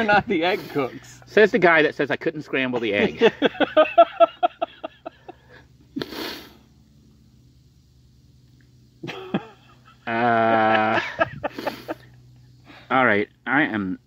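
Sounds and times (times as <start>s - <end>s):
sneeze-like breathy burst: 6.0s - 6.6s.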